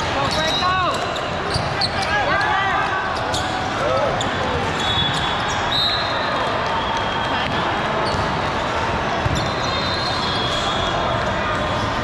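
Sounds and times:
murmur of spectator chatter: 0:00.0 - 0:12.0
high shoe squeaks: 0:00.2 - 0:02.1, 0:03.2 - 0:06.2, 0:09.3 - 0:10.9
ball bouncing on court floor: 0:07.4 - 0:08.4, 0:09.2 - 0:09.5.

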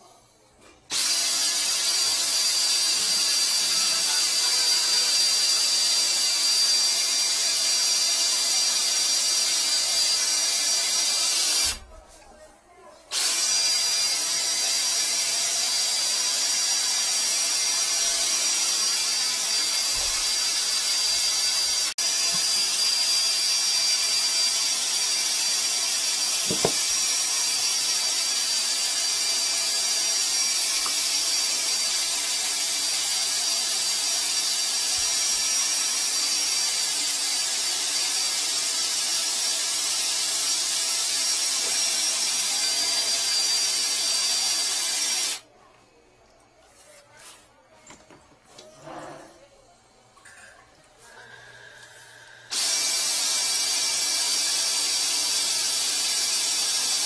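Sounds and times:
drain cleaning machine running: 0:13.1 - 0:45.4, 0:51.2 - 0:57.0.

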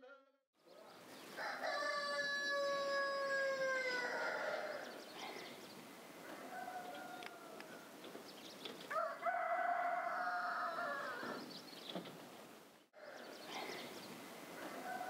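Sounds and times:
rooster crowing: 0:01.4 - 0:04.9, 0:06.3 - 0:08.0, 0:08.9 - 0:11.4, 0:14.6 - 0:15.0.

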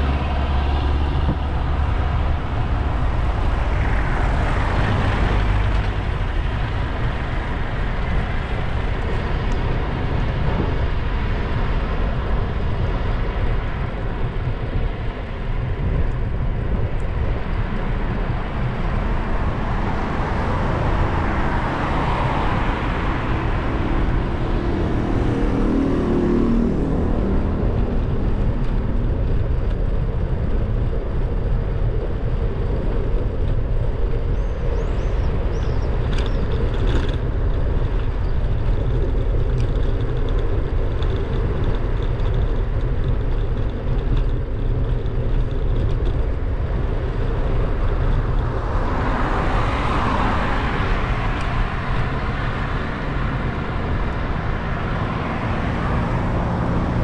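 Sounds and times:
engine hum: 0:00.0 - 0:57.0
wind rumble on microphone: 0:00.0 - 0:57.0
vehicle passing: 0:19.0 - 0:29.1, 0:47.2 - 0:57.0.

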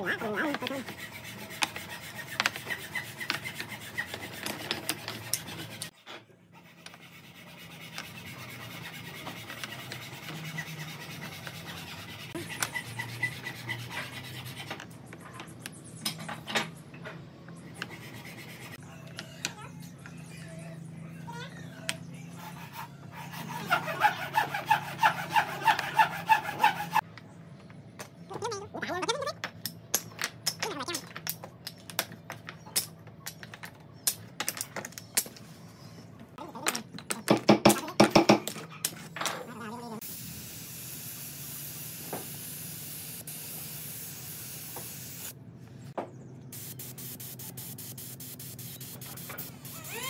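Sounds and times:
wooden pieces clicking and clacking: 0:29.4 - 0:35.4.

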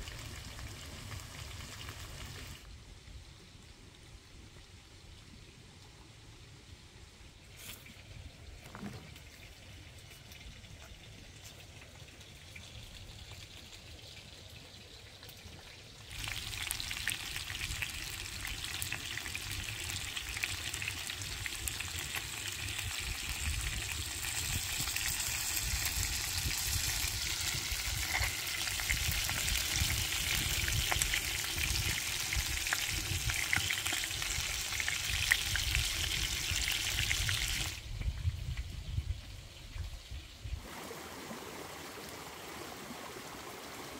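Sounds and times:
food sizzling in hot oil: 0:16.1 - 0:37.8.

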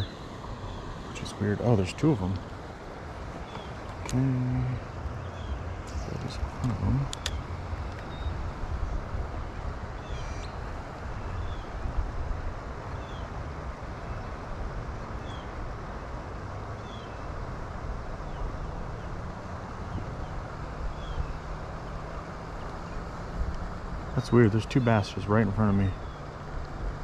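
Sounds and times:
wind rumbling on microphone: 0:00.0 - 0:27.0
faint low hum: 0:03.2 - 0:27.0.

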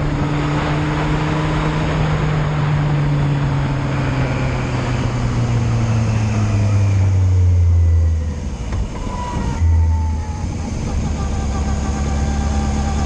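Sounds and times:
motorcycle engine braking: 0:04.0 - 0:13.0.

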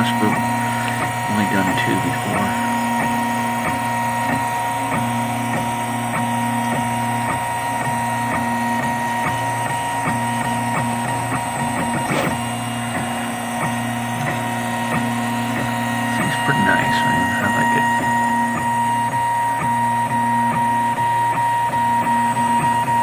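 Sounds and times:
stepper motors whining: 0:00.0 - 0:23.0.

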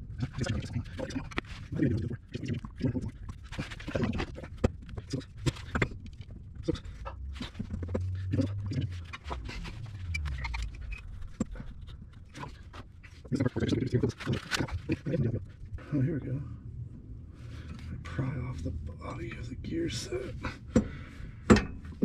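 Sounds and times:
man breathing hard and grunting: 0:20.1 - 0:21.5.

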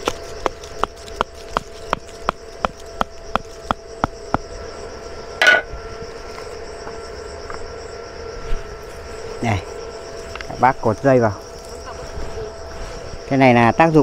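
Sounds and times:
hammering stake into ground: 0:00.0 - 0:04.5.

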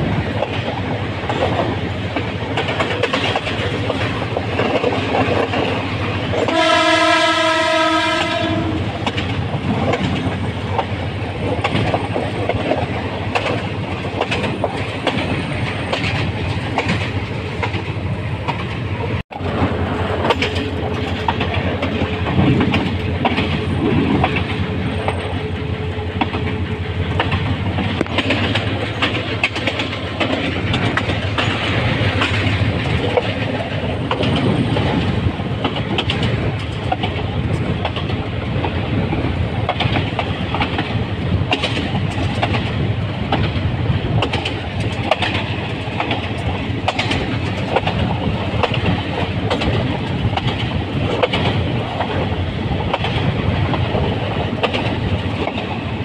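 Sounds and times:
diesel locomotive rumbling: 0:00.0 - 0:56.0
wheels clattering over rails: 0:00.3 - 0:06.6, 0:26.2 - 0:55.9
locomotive horn: 0:06.5 - 0:08.9.

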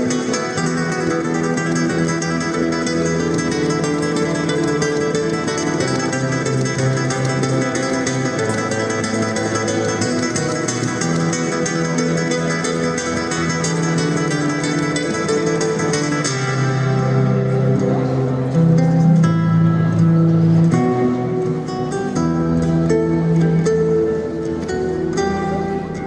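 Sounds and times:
solo classical guitar: 0:00.0 - 0:26.0.

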